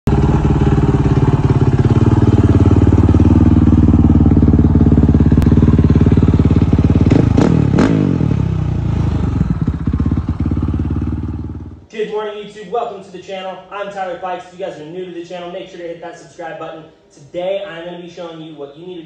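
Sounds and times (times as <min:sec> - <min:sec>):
motorcycle engine idling and revving: 0:00.1 - 0:11.9.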